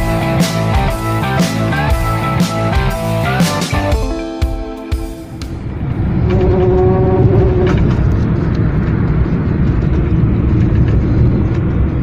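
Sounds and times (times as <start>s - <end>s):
car road and wind noise: 5.2s - 12.0s
roof load vibrating in wind: 5.5s - 12.0s.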